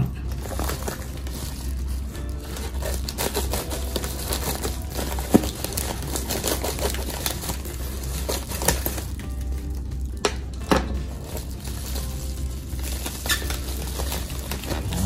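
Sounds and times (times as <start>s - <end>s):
low steady hum: 0.0s - 15.0s
plastic mailer crinkling: 0.0s - 15.0s
scissors cutting plastic: 0.0s - 15.0s.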